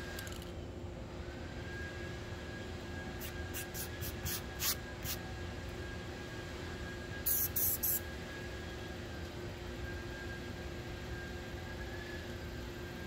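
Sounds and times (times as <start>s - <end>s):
spray can hissing bursts: 3.2s - 5.2s, 7.2s - 8.0s.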